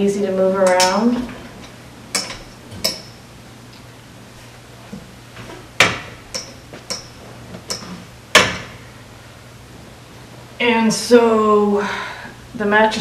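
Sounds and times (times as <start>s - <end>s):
metal bed frame clanking: 0.6s - 3.3s, 5.8s - 8.8s.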